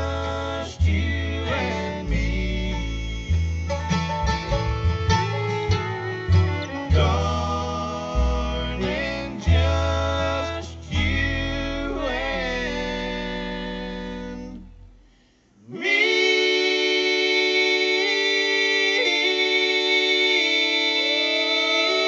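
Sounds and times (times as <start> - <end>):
vocal harmony: 0.0 - 4.8, 6.5 - 22.0
bluegrass band playing: 0.0 - 14.9.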